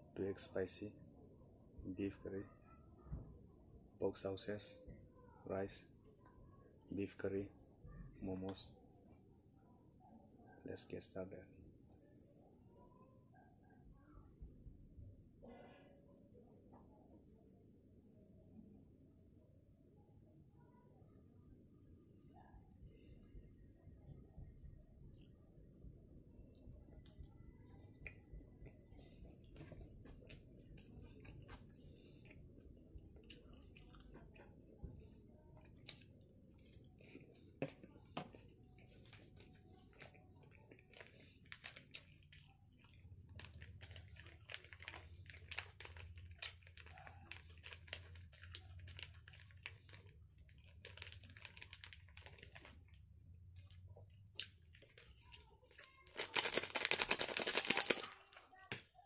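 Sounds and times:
chewing with wet mouth clicks: 0:27.9 - 0:34.7, 0:35.6 - 0:53.0, 0:53.6 - 0:55.9
plastic sachet tearing: 0:38.9 - 0:53.0, 0:54.4 - 0:58.8.

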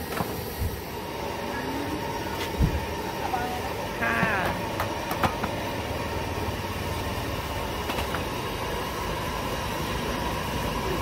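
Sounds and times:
gas burner roaring: 0:00.0 - 0:11.0.

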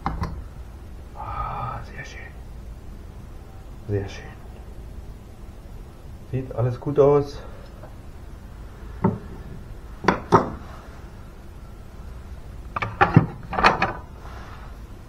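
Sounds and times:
metal parts knocking on wooden bench: 0:10.0 - 0:10.6, 0:12.8 - 0:14.0.

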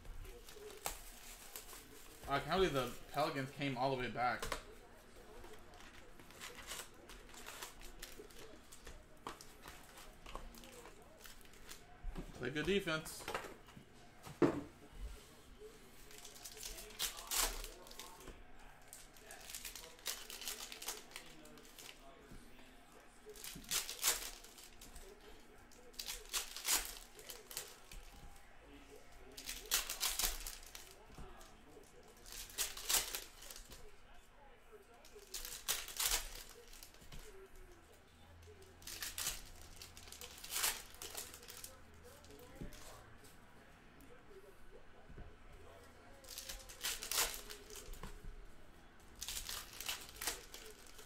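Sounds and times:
card pack wrappers crinkling: 0:00.2 - 0:04.8, 0:16.1 - 0:18.3, 0:18.9 - 0:22.0, 0:23.3 - 0:28.1, 0:29.2 - 0:33.8, 0:35.1 - 0:37.4, 0:38.8 - 0:43.0, 0:46.2 - 0:48.1, 0:49.2 - 0:51.0
plastic wrapper crinkling: 0:18.9 - 0:22.0, 0:35.0 - 0:37.3, 0:38.8 - 0:42.8, 0:46.2 - 0:48.1, 0:49.2 - 0:51.0.

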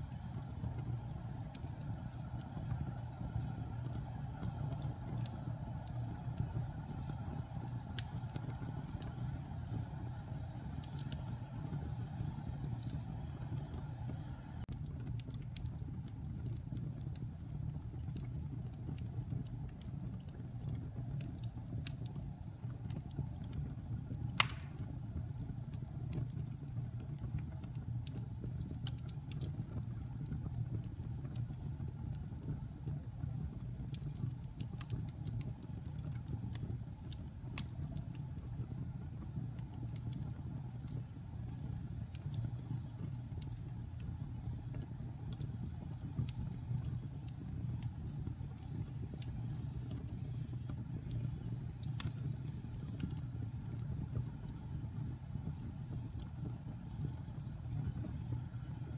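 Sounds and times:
wood fire crackling: 0:00.0 - 0:58.9
sharp pop of fire: 0:24.3 - 0:25.2.

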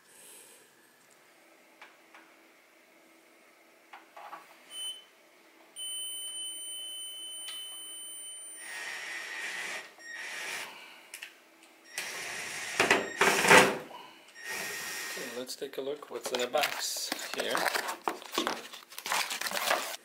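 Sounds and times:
cordless drill drilling: 0:14.4 - 0:15.4.

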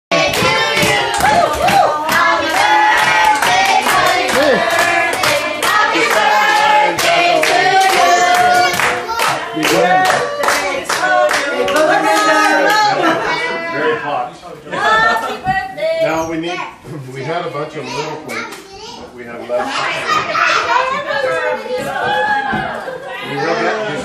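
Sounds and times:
people clapping: 0:00.1 - 0:13.2
group singing a celebration song: 0:00.1 - 0:15.6.

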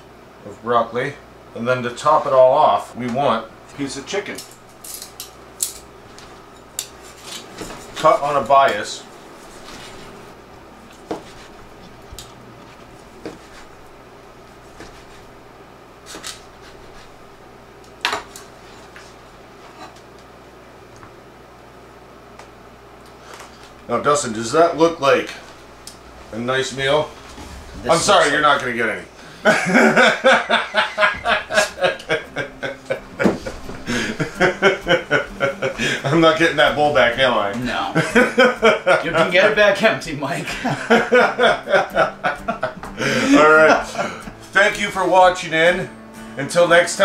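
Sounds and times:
hearty laughter: 0:29.3 - 0:36.2, 0:38.0 - 0:39.5, 0:40.4 - 0:44.4.

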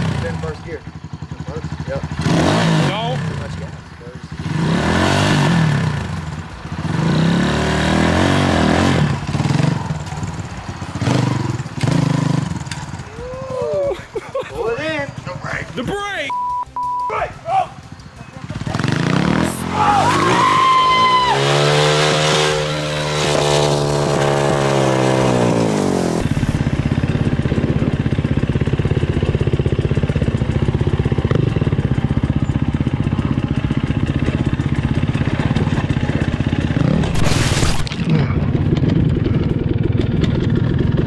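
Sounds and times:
dirt bike engine: 0:00.0 - 0:41.0
scraping crash: 0:37.0 - 0:38.4.

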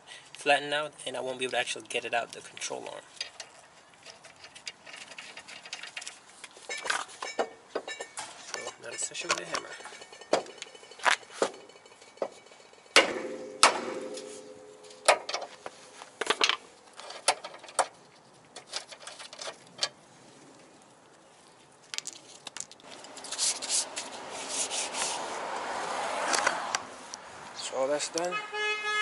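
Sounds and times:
metal parts scraping and clicking: 0:02.4 - 0:13.0, 0:16.2 - 0:20.0, 0:21.9 - 0:24.2
hammer striking steel: 0:07.2 - 0:15.3.

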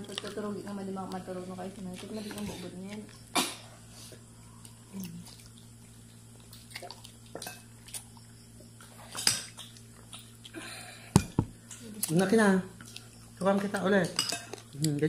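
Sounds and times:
steady low hum: 0:00.0 - 0:15.0
child chewing and lip smacking: 0:04.1 - 0:11.0, 0:11.6 - 0:15.0.

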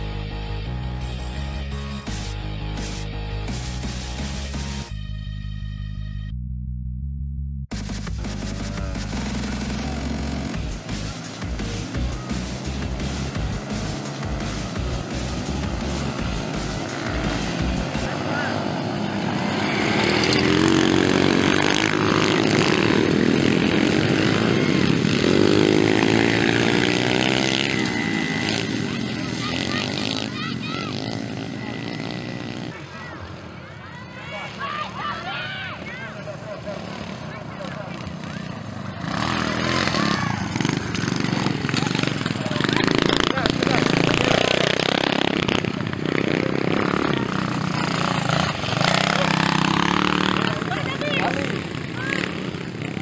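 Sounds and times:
rock music with guitar: 0:07.7 - 0:18.1
small motorcycle engines revving: 0:07.8 - 0:53.0.

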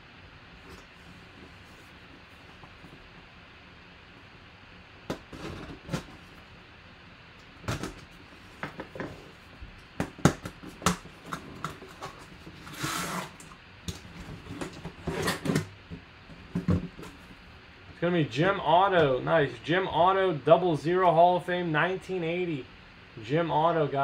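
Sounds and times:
scraping rasp: 0:11.3 - 0:13.4
knife slitting cardboard box: 0:11.9 - 0:13.4.

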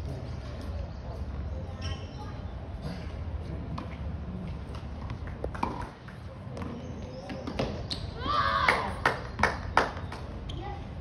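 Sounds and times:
tennis balls bouncing on court: 0:03.7 - 0:10.6.

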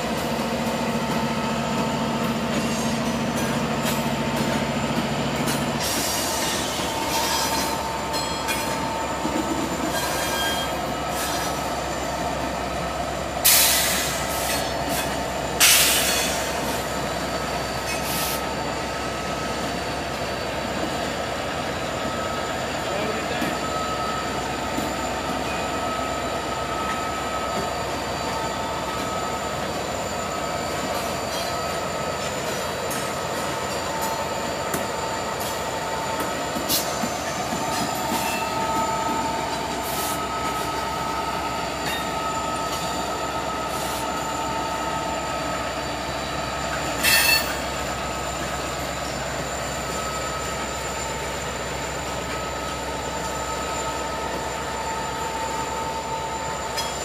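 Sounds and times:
freight train rolling: 0:00.0 - 0:57.0
wheel squeal: 0:05.8 - 0:11.6, 0:47.0 - 0:47.7.

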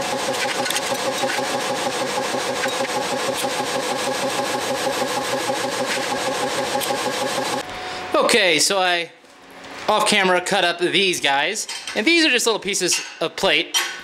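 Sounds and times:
welding arc buzzing: 0:00.0 - 0:07.9.

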